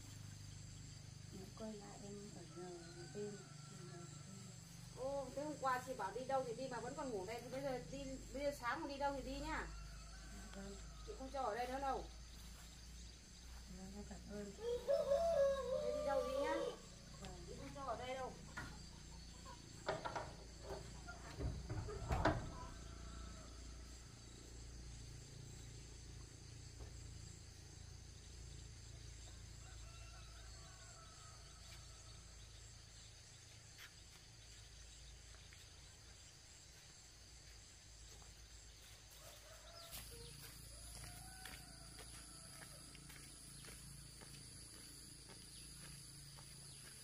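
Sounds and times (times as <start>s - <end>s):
insects trilling: 0.0s - 47.0s.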